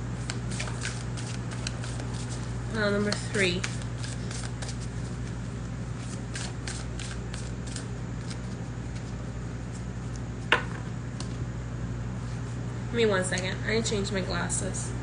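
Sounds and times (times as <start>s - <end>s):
steady low hum: 0.0s - 15.0s
cards being shuffled: 0.2s - 5.4s, 6.0s - 10.2s.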